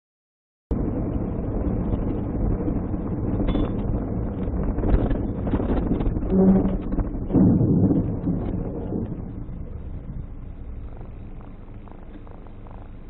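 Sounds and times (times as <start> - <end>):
car road and wind rumble: 0.7 - 13.0
short low tone: 6.2 - 11.4.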